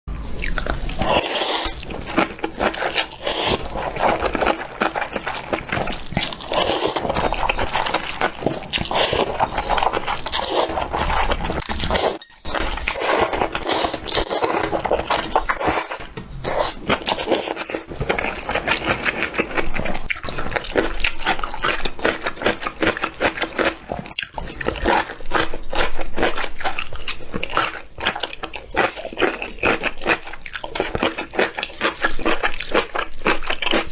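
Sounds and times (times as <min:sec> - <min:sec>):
slurping noodles: 0:00.4 - 0:21.8.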